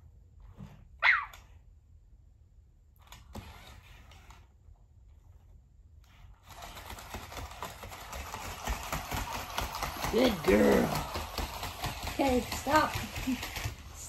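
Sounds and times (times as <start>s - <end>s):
robot paws clicking on wood floor: 6.4s - 14.0s.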